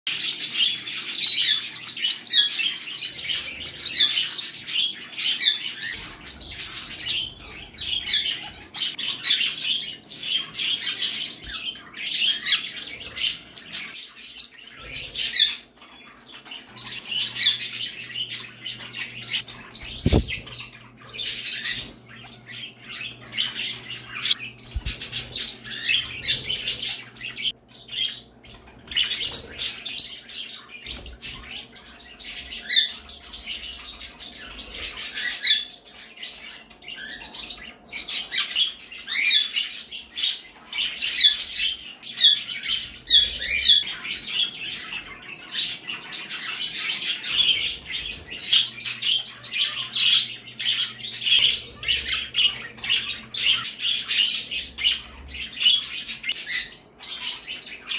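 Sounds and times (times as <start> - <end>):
birds chirping and twittering: 0.0 - 57.9.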